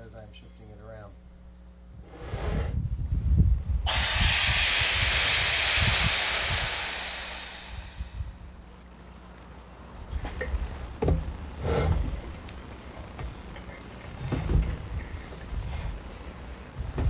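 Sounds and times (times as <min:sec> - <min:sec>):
air hissing through a valve: 0:03.8 - 0:08.6.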